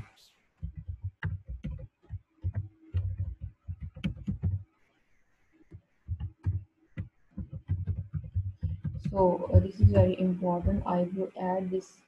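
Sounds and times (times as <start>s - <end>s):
keyboard typing: 0.6s - 4.6s, 6.1s - 11.0s.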